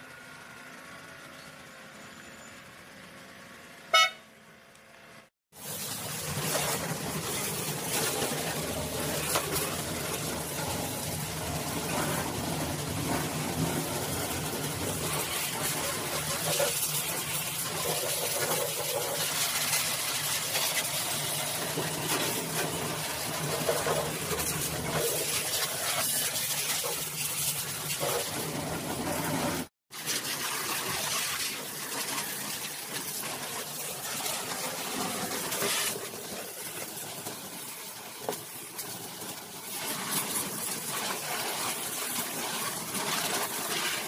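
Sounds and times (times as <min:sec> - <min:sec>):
pressure washer water spray: 0:05.6 - 0:44.0
pump motor humming: 0:05.6 - 0:44.0.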